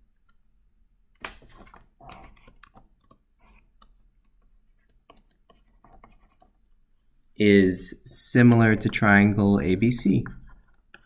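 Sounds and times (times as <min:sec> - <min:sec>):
stylus scraping on tablet: 0:01.5 - 0:02.8, 0:04.6 - 0:06.6.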